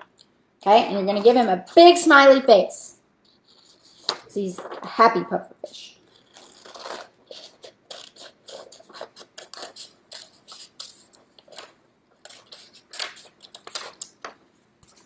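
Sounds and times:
scissors snipping paper: 6.2 - 15.0.

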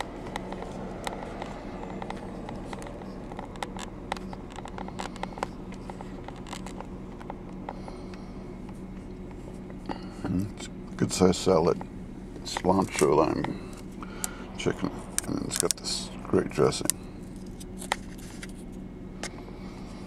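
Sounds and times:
sharp clicks and ticks: 0.0 - 9.4, 12.5 - 16.2
steady low hum: 0.0 - 20.0.

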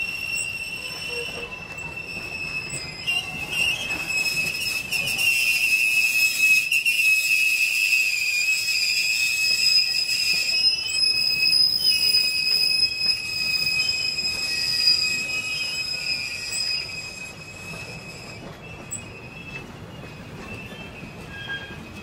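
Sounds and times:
train wheels squealing on rails: 0.0 - 22.0.

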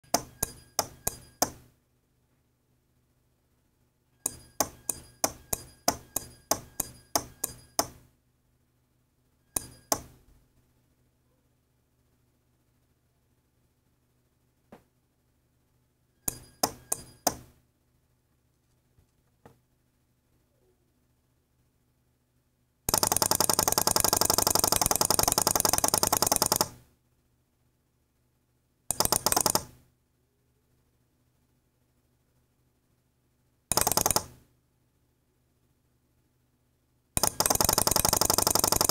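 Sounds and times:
electronic clicking buzz: 0.1 - 1.6, 4.2 - 8.0, 9.6 - 10.1, 16.3 - 17.4.

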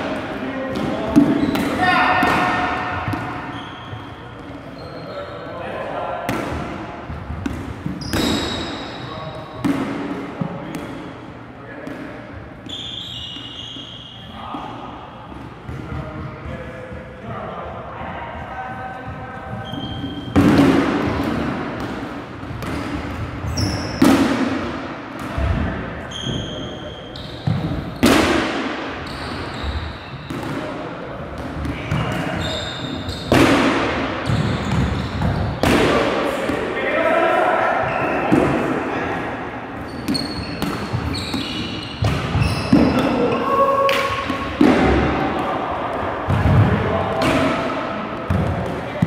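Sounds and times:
balls hitting gym floor: 0.0 - 5.0, 6.0 - 17.2, 18.8 - 36.8, 39.8 - 49.0
sneakers squeaking on court: 0.8 - 5.5, 7.1 - 9.7, 11.8 - 14.4, 19.4 - 20.4, 22.4 - 24.1, 26.1 - 28.1, 29.0 - 30.6, 31.4 - 33.4, 34.2 - 35.7, 39.7 - 44.6
loud echoing thud: 44.0 - 45.5.

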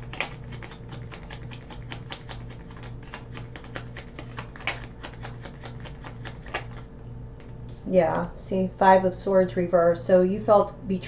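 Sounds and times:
cards being shuffled: 0.0 - 7.9.

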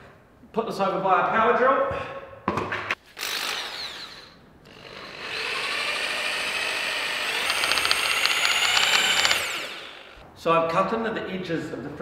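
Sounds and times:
power drill mixing with high whine: 3.2 - 10.2.

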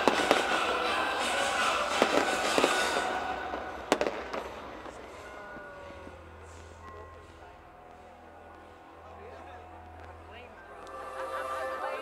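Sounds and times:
fireworks bangs: 0.0 - 5.4
fireworks hissing and crackling: 0.0 - 8.7.

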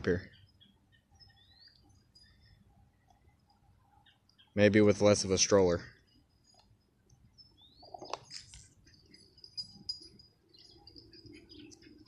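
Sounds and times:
faint bird chirps and whistles: 0.1 - 2.6, 7.3 - 8.1.

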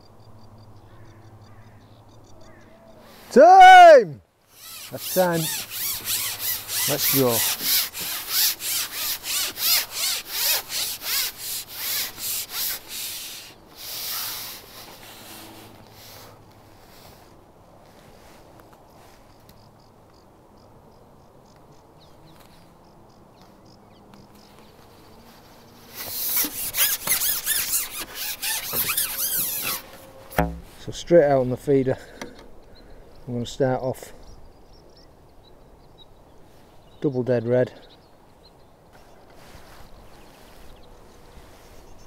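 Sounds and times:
faint bird chirps: 0.0 - 3.2
fishing pole sections squeaking: 4.5 - 16.3, 25.9 - 30.9.

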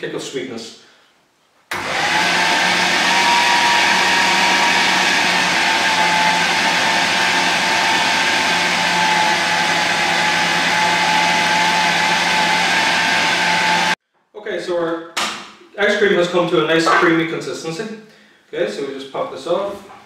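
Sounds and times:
food processor motor whine: 1.7 - 14.0.

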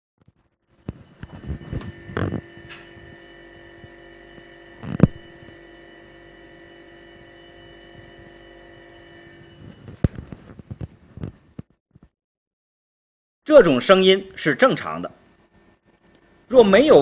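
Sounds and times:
refrigerator compressor humming: 0.7 - 9.9.

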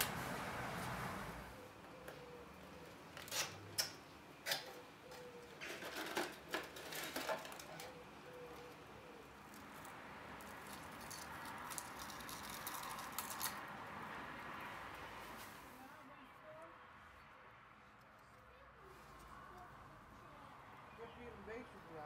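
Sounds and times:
packaging clicks and crinkles: 10.4 - 13.6.

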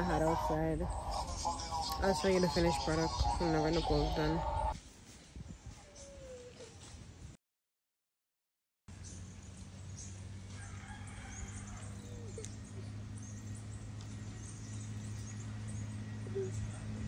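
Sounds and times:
chickens calling: 0.0 - 4.8, 10.5 - 17.0
steady low hum: 0.0 - 4.8.

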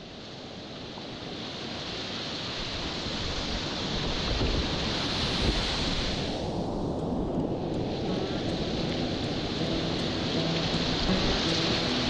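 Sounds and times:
whitewater rushing: 7.9 - 12.0.

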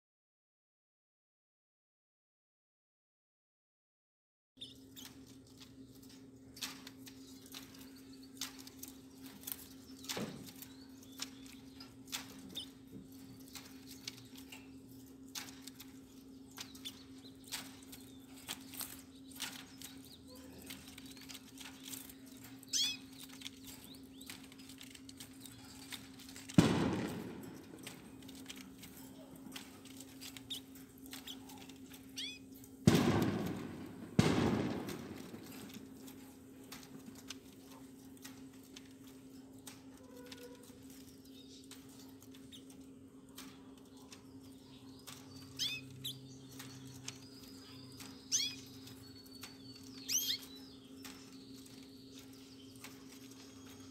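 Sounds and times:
canaries chirping: 4.6 - 53.9
steady low hum: 4.6 - 53.9
loud ringing knocks: 26.3 - 28.6, 32.9 - 36.1.

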